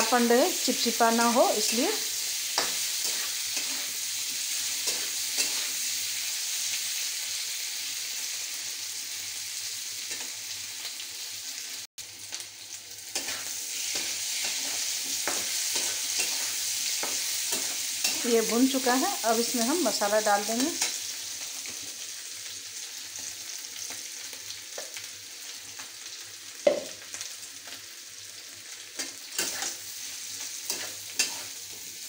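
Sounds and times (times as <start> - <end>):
potatoes sizzling in hot oil: 0.0 - 32.0
spatula scraping pan: 2.5 - 5.8, 13.2 - 18.9, 29.0 - 29.8, 30.6 - 31.6.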